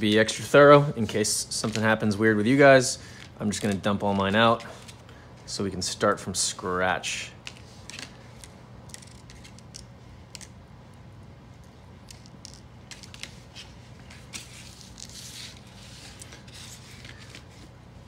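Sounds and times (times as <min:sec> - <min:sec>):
soft brushing: 0:13.0 - 0:17.7.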